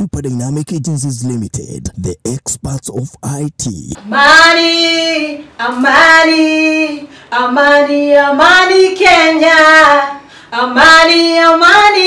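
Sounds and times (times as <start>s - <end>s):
woman singing unaccompanied: 4.0s - 12.0s.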